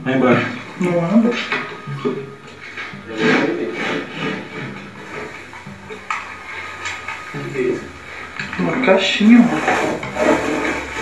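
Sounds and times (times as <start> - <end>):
wooden drawer scraping: 0.4 - 5.6, 9.2 - 11.0.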